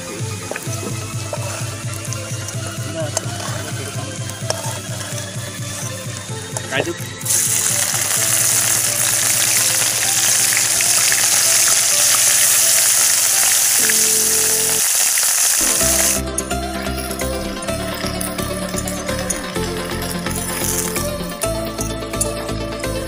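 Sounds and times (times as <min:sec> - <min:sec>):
snails sizzling in hot oil: 0:07.2 - 0:16.2, 0:17.1 - 0:21.2.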